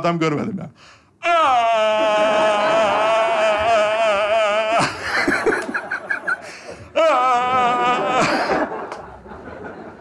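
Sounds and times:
man's high-pitched held cry: 1.2 - 5.0
audience laughter: 4.8 - 6.9, 7.6 - 10.0.

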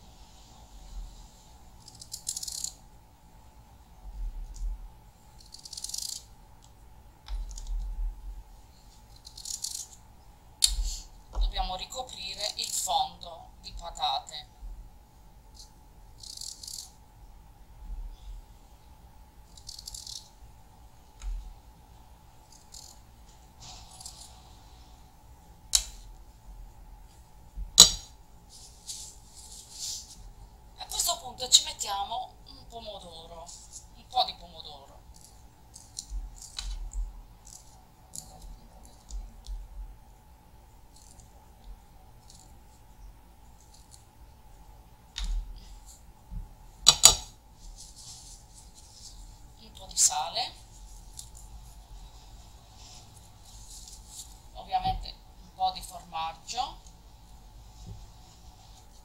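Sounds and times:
scraping rustles: 28.5 - 30.3, 47.5 - 49.5, 50.6 - 54.6.

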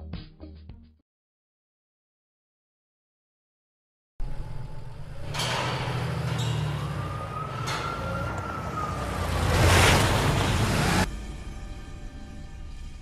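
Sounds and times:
rising and falling siren wail: 4.2 - 11.3
low engine rumble: 4.2 - 13.0.

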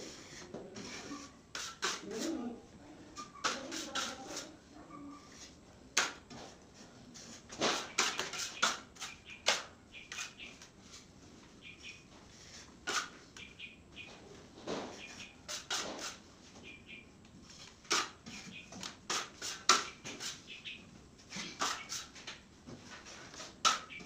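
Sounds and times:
putty knife scraping: 0.1 - 2.3, 3.2 - 4.5, 7.1 - 11.1, 12.3 - 13.5, 14.9 - 16.2, 17.6 - 20.5, 21.3 - 22.3, 22.9 - 24.0.

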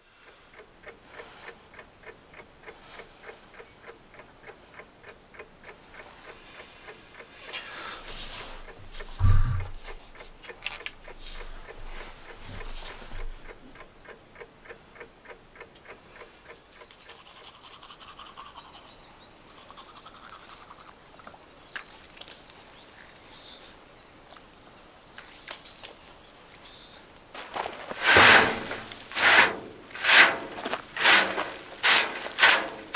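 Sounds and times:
regular ticking: 0.0 - 21.6, 27.3 - 32.9
faint bird chirps: 16.4 - 27.4
toothbrush scrubbing teeth: 16.8 - 18.9, 19.5 - 21.0.

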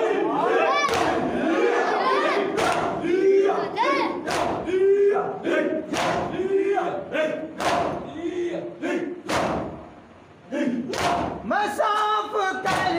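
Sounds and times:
crowd of men chanting: 0.0 - 12.9
hands slapping chests: 0.9 - 1.2, 2.6 - 2.9, 5.9 - 6.3, 9.2 - 9.7, 10.9 - 11.4.

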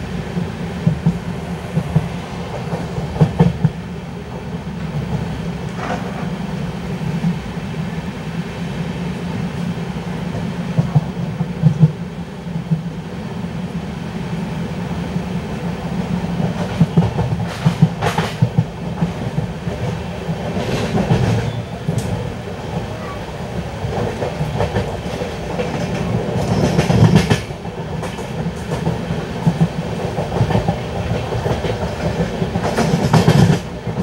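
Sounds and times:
train wheels rumbling on rails: 0.0 - 34.0
wheels clacking over rail joints: 16.4 - 34.0.

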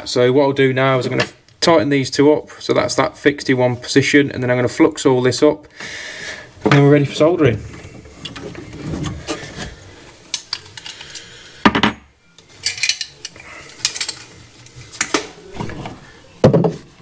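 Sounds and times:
metal tools clinking: 12.6 - 14.4.

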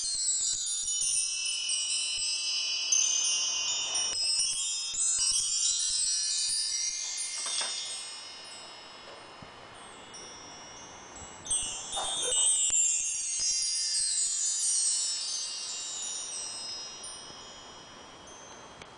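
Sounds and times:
bar chimes ringing: 1.2 - 18.9.

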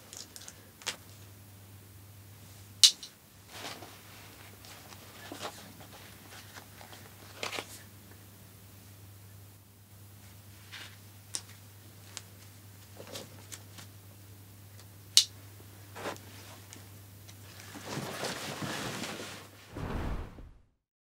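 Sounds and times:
backpack fabric rustling: 17.7 - 19.8.

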